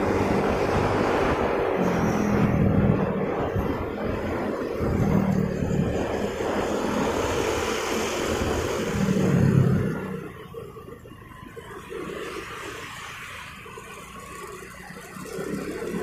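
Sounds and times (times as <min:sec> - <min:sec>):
motorcycle engine: 0:00.0 - 0:10.8
wind rushing over microphone: 0:00.0 - 0:11.3
street traffic: 0:00.0 - 0:16.0.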